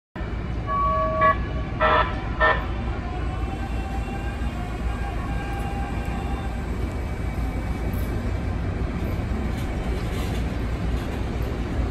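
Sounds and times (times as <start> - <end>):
train horn: 0.2 - 6.7
train rumbling: 0.2 - 11.9.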